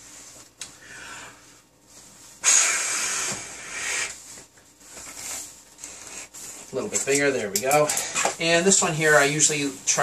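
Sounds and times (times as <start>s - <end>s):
balloon being inflated: 2.4s - 6.3s.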